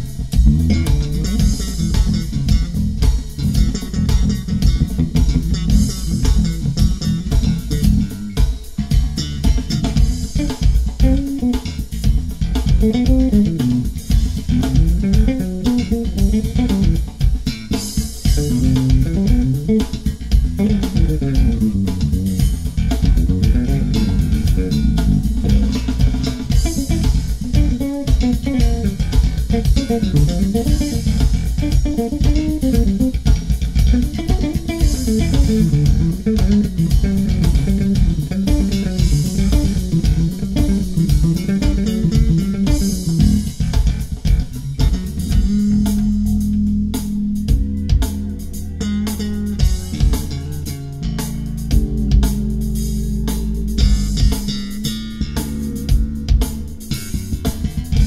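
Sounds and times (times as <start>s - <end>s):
drums: 0.0s - 58.0s
electric bass playing: 0.0s - 58.0s.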